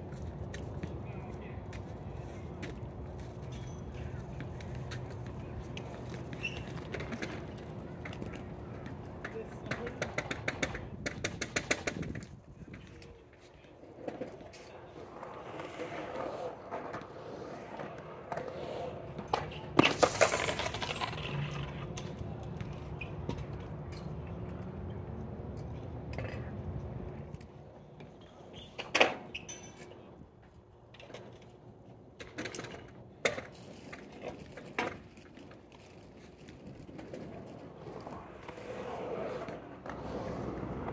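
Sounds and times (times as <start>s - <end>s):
skateboard wheels rolling on concrete: 0.0s - 40.9s
skateboard clattering knocks: 5.7s - 13.0s.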